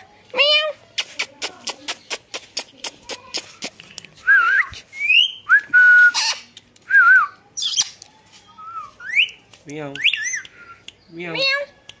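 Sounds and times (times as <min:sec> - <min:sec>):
parakeet whistles: 0:05.0 - 0:06.4
parakeet squawk: 0:06.1 - 0:06.5.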